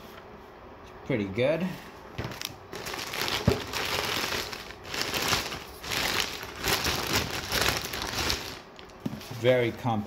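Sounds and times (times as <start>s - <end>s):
plastic bag crinkling: 2.2s - 9.4s.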